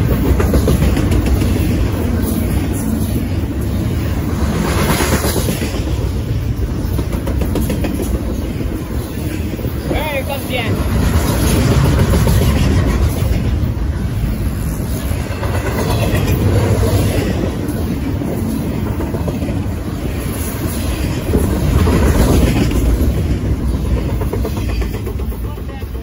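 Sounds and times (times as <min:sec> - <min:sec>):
train wheels rolling on rails: 0:00.0 - 0:26.0.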